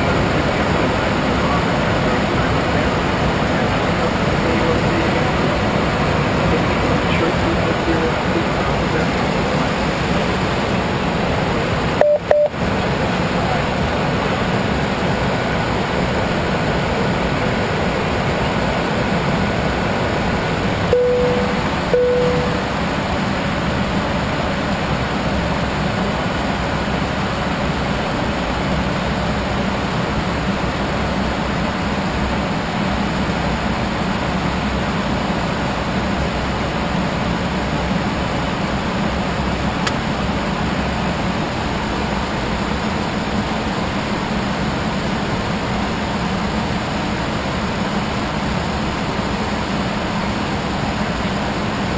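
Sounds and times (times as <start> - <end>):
airflow and engine noise: 0.0 - 51.9
short electronic tones: 12.0 - 12.5, 20.9 - 22.8.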